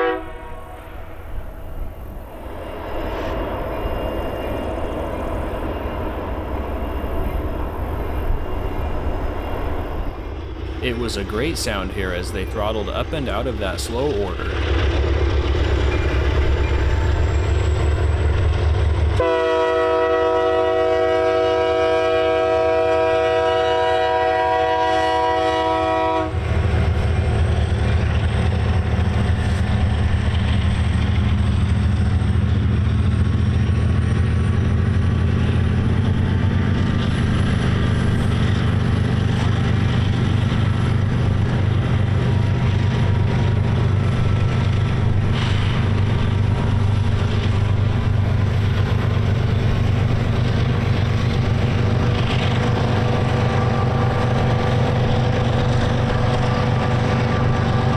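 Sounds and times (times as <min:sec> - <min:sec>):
locomotive horn chord: 0:00.0 - 0:00.9, 0:19.2 - 0:26.4, 0:53.0 - 0:54.6
diesel locomotive engine drone: 0:00.0 - 0:57.9.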